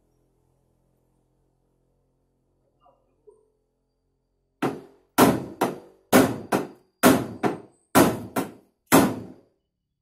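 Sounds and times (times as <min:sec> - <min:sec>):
hammer striking steel panel: 0:04.6 - 0:09.4.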